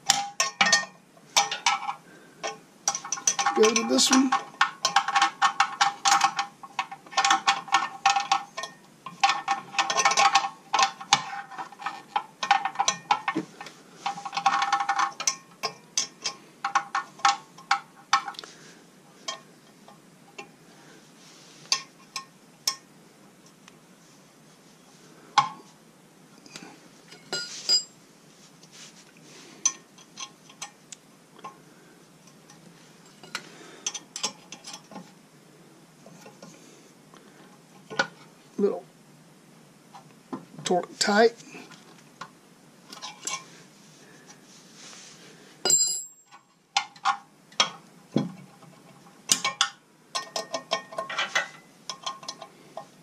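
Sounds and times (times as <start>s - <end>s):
metal clinking on metal: 0.0s - 13.4s, 27.1s - 28.0s, 45.6s - 47.8s, 49.3s - 52.9s.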